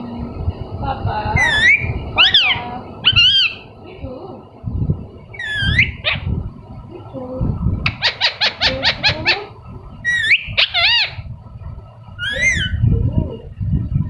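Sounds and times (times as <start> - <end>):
parrot chirping: 1.3 - 3.8, 5.3 - 6.4, 7.8 - 11.3, 12.1 - 12.9
parrot squawking: 1.4 - 3.8, 5.3 - 6.3, 7.9 - 11.3, 12.2 - 12.8.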